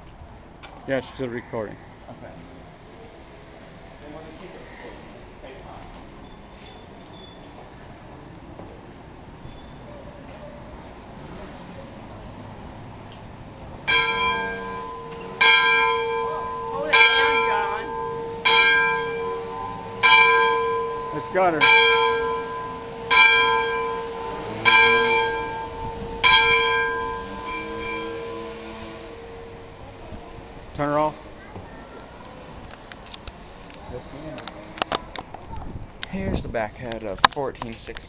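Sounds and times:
steam locomotive bell ringing: 13.8 - 31.4.

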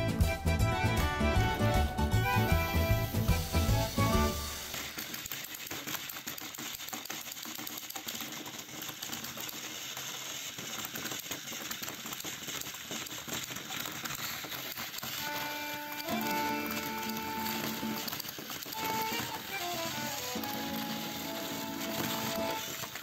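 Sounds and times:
music: 0.0 - 4.8, 15.2 - 23.0
toy train motors whirring: 0.0 - 23.0
fast clicking rattle of wheels: 2.6 - 23.0.

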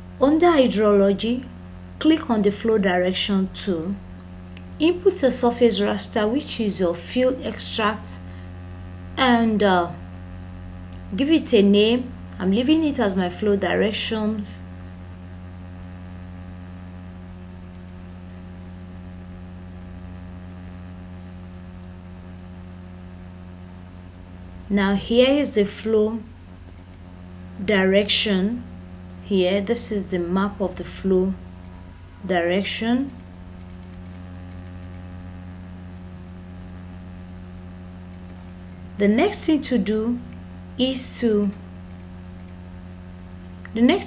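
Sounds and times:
low electrical hum: 0.0 - 44.0
mouse clicks: 26.7 - 27.0, 33.2 - 35.1, 38.1 - 38.4, 41.9 - 42.6.

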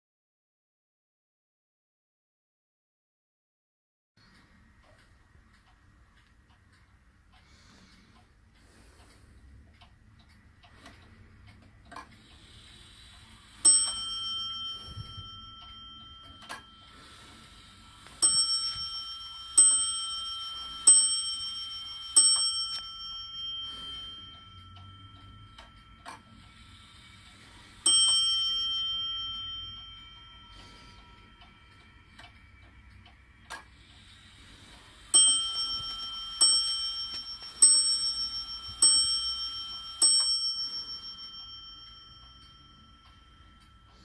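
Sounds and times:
clock movement clicks: 4.2 - 44.0
clock bell striking: 13.6 - 34.1, 35.0 - 44.0.

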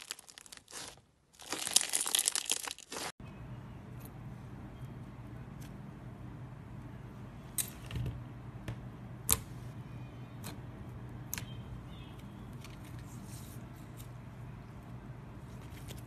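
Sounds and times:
slime crackling: 0.0 - 3.2.

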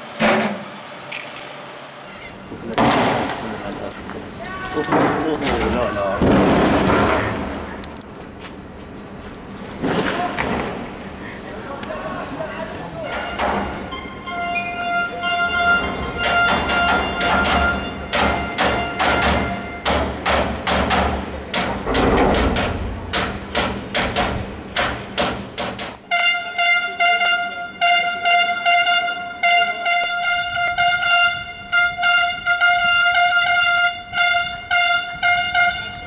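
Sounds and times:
horn short blasts: 13.0 - 20.0, 26.0 - 36.0
rapid clattering knocks: 16.1 - 26.0.

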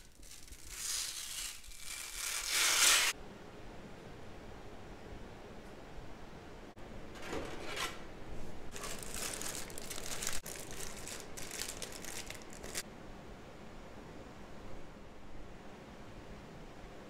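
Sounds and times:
plastic bag crinkling: 0.0 - 3.1, 8.7 - 12.8.

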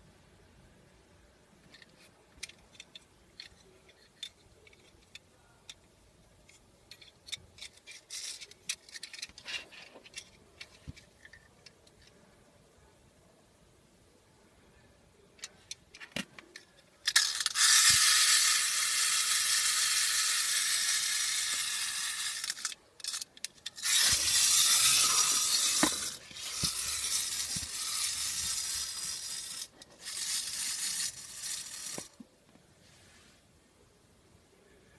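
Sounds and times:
clockwork gears whirring: 17.1 - 32.2.

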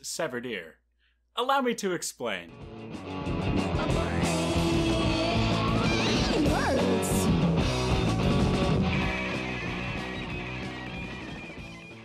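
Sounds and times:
guitar-led theme music: 2.5 - 12.0.

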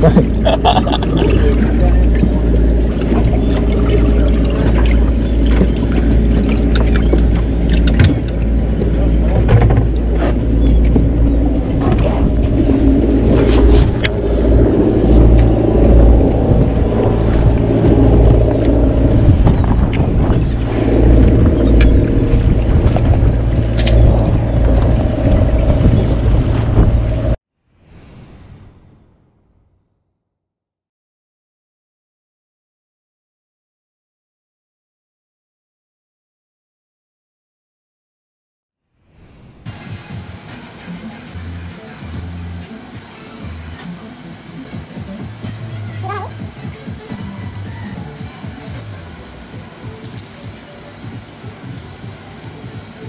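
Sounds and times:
boat engine droning: 0.0 - 27.4, 39.2 - 53.0
wind on microphone: 0.0 - 28.9.

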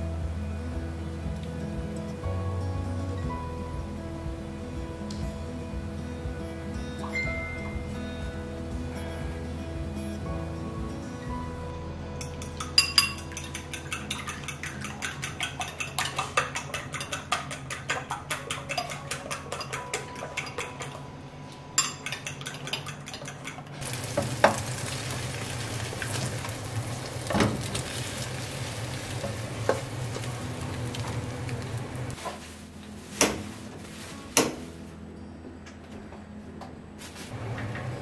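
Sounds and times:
utensil beating eggs in a bowl: 12.4 - 21.0
eggs sizzling in a frying pan: 23.8 - 32.2.

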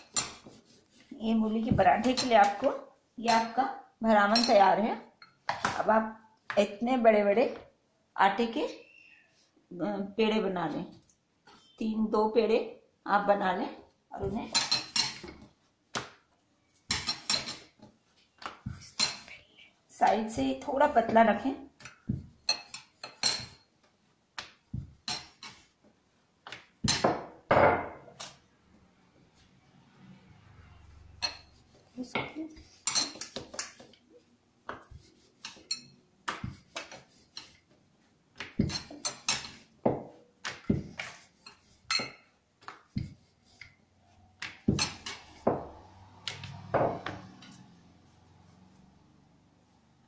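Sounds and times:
rolling pin knocking on countertop: 44.4 - 47.3.

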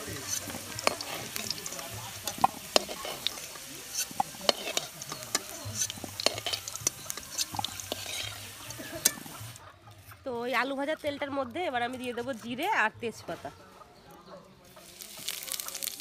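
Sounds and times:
metal spoon clinking on pan: 0.0 - 9.5
potatoes sizzling in oil: 0.0 - 9.6, 14.7 - 16.0.

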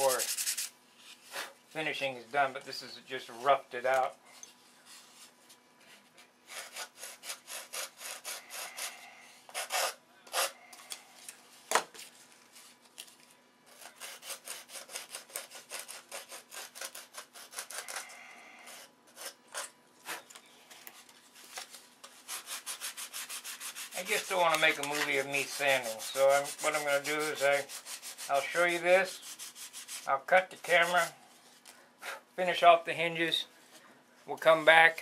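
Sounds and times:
sandpaper rubbing on wood: 0.0 - 0.7, 6.5 - 10.6, 13.8 - 18.1, 22.1 - 31.2.

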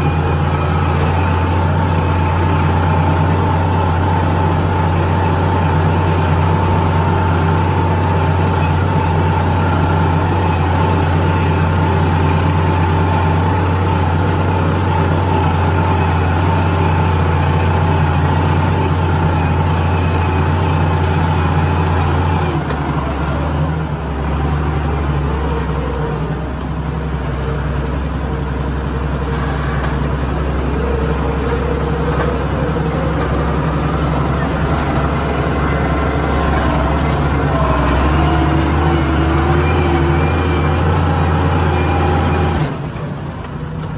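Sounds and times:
tractor diesel engine running: 0.0 - 43.9.

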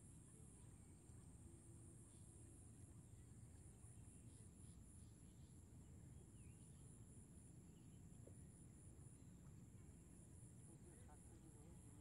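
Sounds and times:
faint bird chirps: 0.1 - 8.6.

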